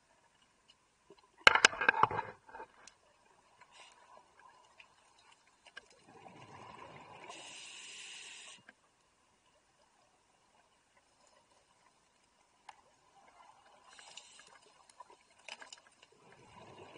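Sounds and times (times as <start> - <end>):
regulator hiss: 7.4 - 8.7.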